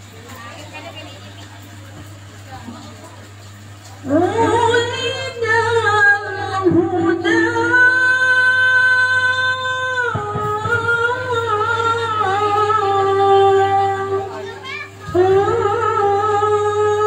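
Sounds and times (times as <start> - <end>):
girl singing into microphone: 4.1 - 17.0.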